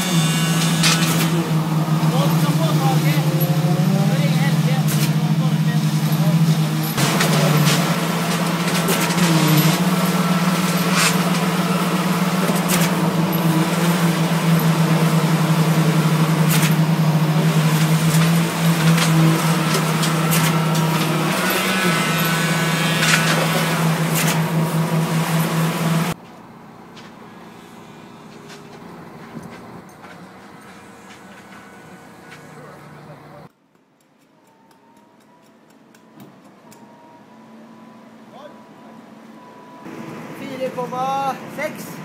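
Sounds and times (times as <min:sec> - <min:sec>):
heavy machinery humming: 0:00.0 - 0:33.5, 0:34.5 - 0:42.0.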